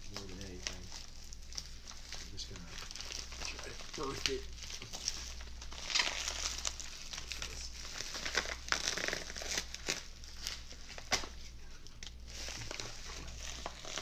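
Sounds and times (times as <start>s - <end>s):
bubble wrap crinkling: 0.0s - 14.0s.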